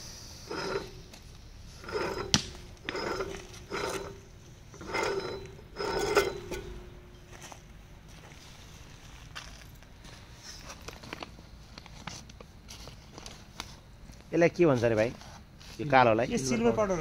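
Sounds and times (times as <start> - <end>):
metal valve grating: 0.0 - 7.4.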